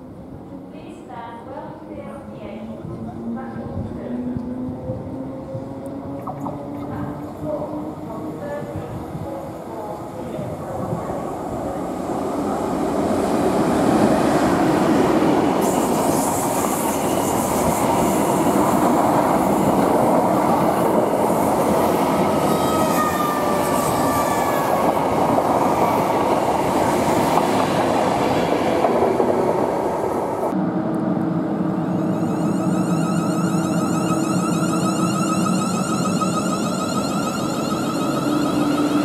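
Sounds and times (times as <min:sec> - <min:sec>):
faint falling squeal tones: 0:31.7 - 0:39.0.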